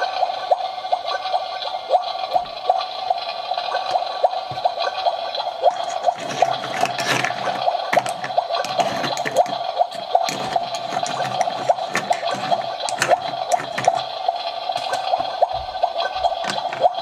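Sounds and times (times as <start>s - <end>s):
electronic bubbling sound effect: 0.0s - 6.8s, 7.4s - 17.0s
plastic spoon clicking in pot: 7.9s - 14.0s.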